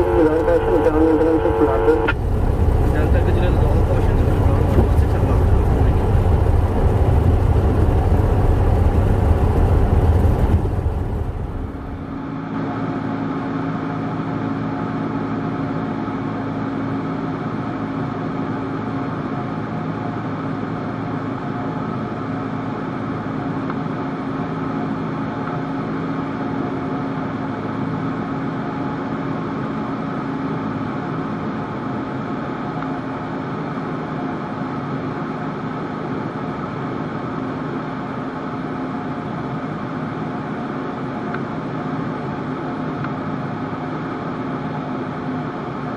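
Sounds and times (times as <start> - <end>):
aircraft engine and propeller droning: 0.0 - 45.9.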